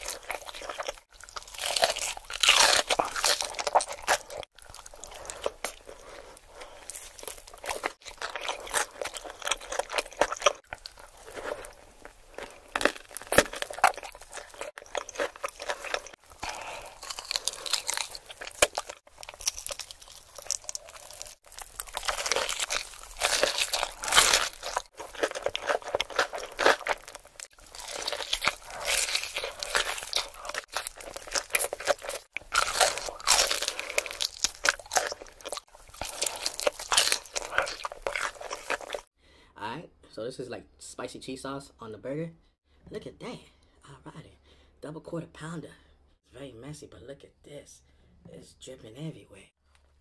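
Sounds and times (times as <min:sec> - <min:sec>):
crunchy chewing: 0:00.0 - 0:39.1.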